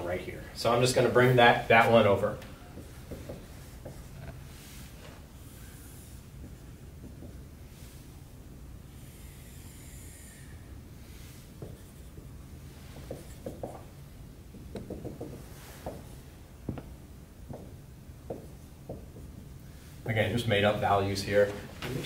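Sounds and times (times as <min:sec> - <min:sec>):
scratchy marker strokes: 0:02.8 - 0:08.3, 0:08.9 - 0:13.7
marker squeaking on whiteboard: 0:05.4 - 0:07.5, 0:09.0 - 0:13.9
light marker taps: 0:14.5 - 0:16.0.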